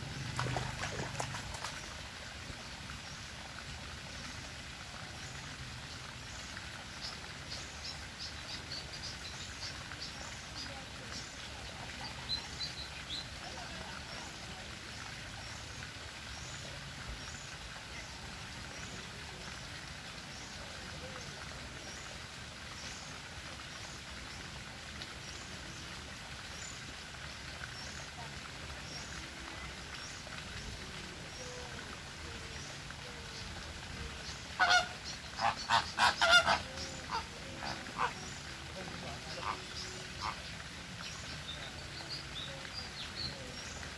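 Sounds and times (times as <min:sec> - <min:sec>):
outdoor background noise: 0:00.0 - 0:43.9
flamingos honking: 0:34.4 - 0:40.8.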